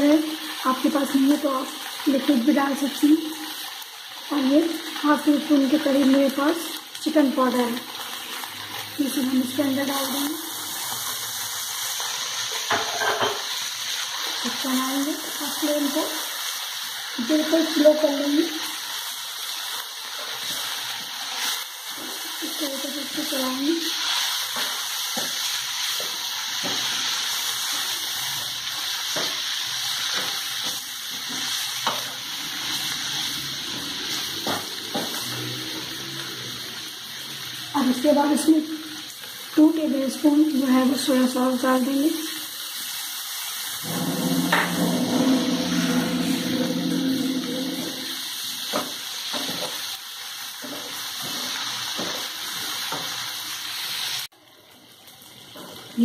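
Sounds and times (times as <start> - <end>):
chicken sizzling in oil: 0.0 - 56.0
spatula scraping a pan: 43.8 - 48.3.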